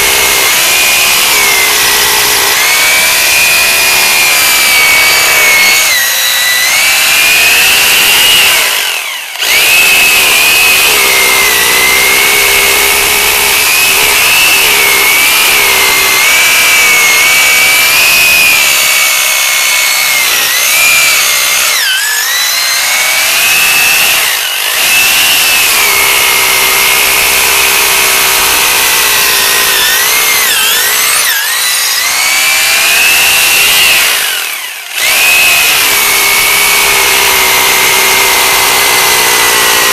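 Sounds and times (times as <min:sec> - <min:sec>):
power drill boring into concrete: 0:00.0 - 0:39.9.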